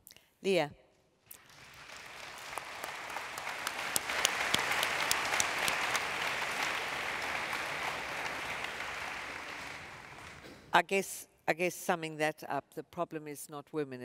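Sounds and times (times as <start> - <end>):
audience applauding: 1.3 - 10.7.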